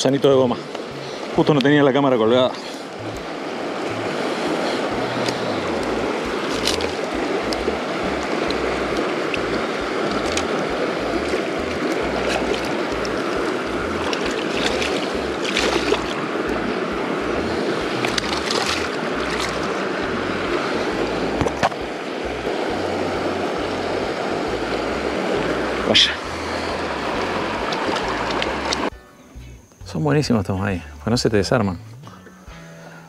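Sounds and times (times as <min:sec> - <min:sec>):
river water rushing: 0:00.0 - 0:28.9
fish thrashing and splashing: 0:02.8 - 0:25.5, 0:26.4 - 0:28.9.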